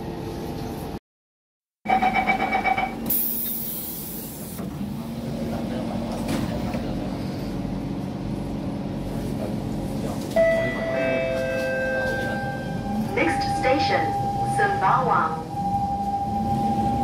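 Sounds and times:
train running with low hum: 0:00.0 - 0:01.0, 0:01.9 - 0:17.0
door-closing warning chime: 0:10.4 - 0:14.5.

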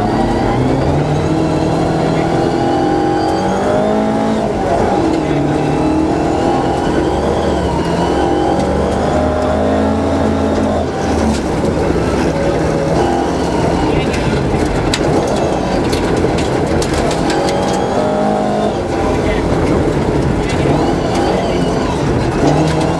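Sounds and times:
rally car engine revving: 0:00.0 - 0:22.9
gravel striking car underside: 0:13.8 - 0:18.2.

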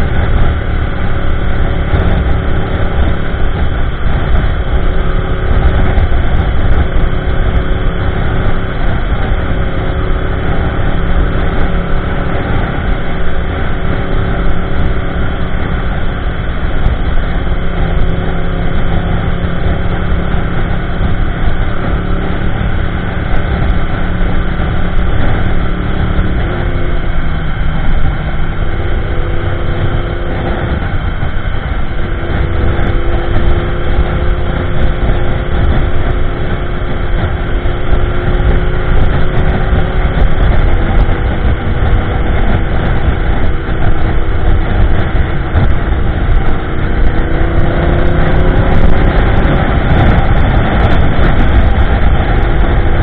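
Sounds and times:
motorcycle engine cruising: 0:00.0 - 0:53.0
wind rumble on microphone: 0:00.0 - 0:53.0.

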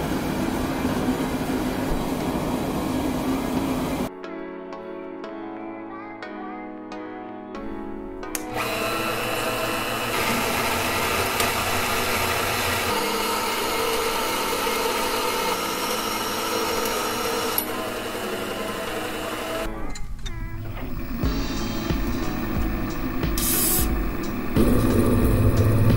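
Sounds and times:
band saw cutting steel pipe: 0:08.4 - 0:19.7.

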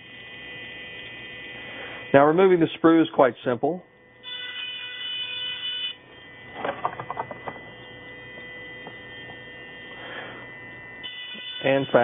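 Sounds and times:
faint steady hum: 0:00.0 - 0:12.0
dental handpiece whine: 0:04.2 - 0:12.0.

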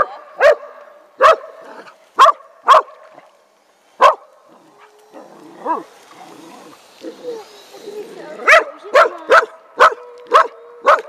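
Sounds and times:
small dog barking: 0:00.0 - 0:01.5, 0:02.2 - 0:03.0, 0:04.0 - 0:04.2, 0:08.4 - 0:11.0.

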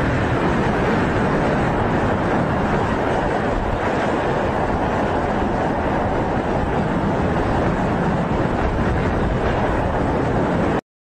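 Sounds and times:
wind buffeting microphone: 0:00.0 - 0:10.8.

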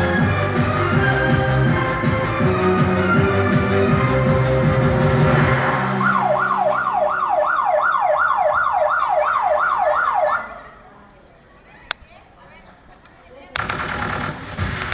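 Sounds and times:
electronic dance music: 0:00.0 - 0:08.3
siren-like whoop effect: 0:05.4 - 0:10.5.

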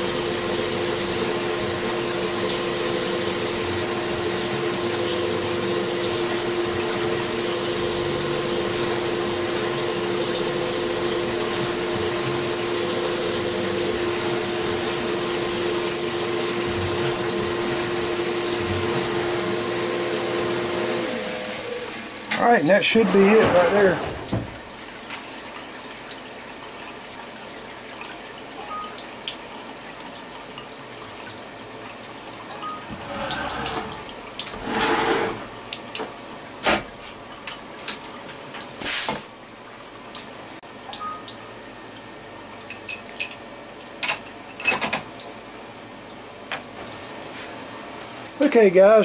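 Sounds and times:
faint machine hum: 0:00.0 - 0:49.0
coolant trickling and dripping: 0:21.6 - 0:49.0.

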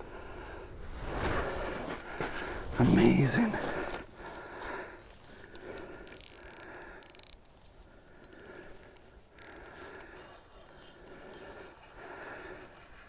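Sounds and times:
fishing rod and reel handling: 0:03.8 - 0:10.8
fishing reel rapid clicking: 0:04.8 - 0:05.2, 0:06.0 - 0:07.4, 0:08.2 - 0:08.6, 0:09.4 - 0:10.0.

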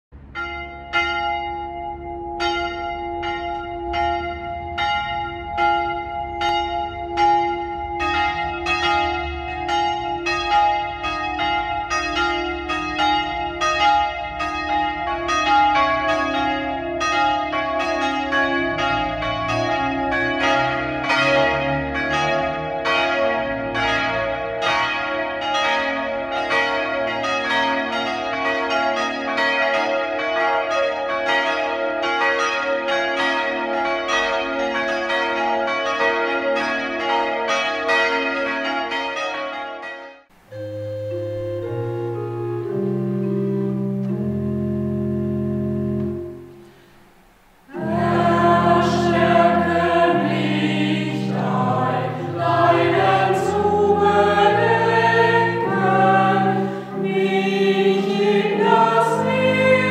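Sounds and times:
full peal of church bells: 0:00.2 - 0:46.6, 0:47.7 - 0:59.9
deep bells humming: 0:00.3 - 0:24.2, 0:40.4 - 0:47.0, 0:47.7 - 0:59.9
single church bell striking: 0:00.3 - 0:29.8.

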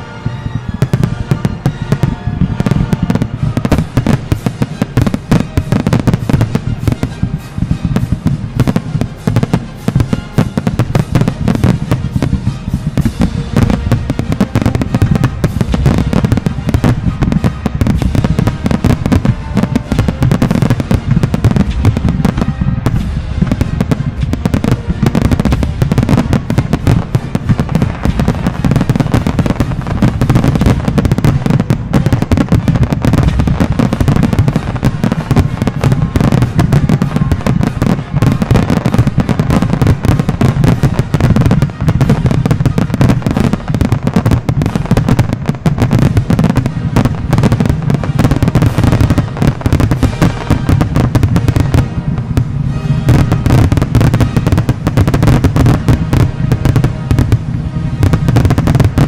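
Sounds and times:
fireworks bursting: 0:00.0 - 0:59.0.

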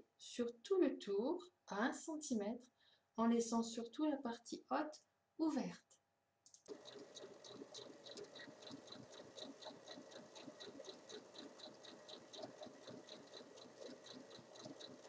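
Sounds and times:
sewing machine stitching: 0:06.6 - 0:15.0.

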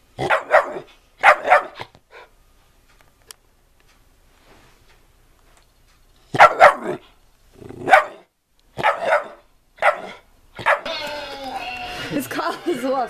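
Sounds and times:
dog barking: 0:00.2 - 0:02.3, 0:06.3 - 0:07.0, 0:07.8 - 0:10.9.

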